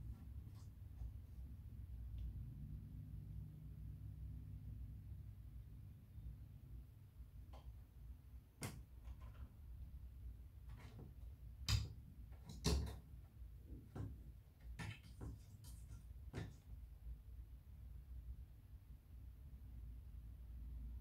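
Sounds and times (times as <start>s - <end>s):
cat clawing at cabinet door: 10.7s - 13.1s
cabinet door knocking and rattling: 11.7s - 13.0s.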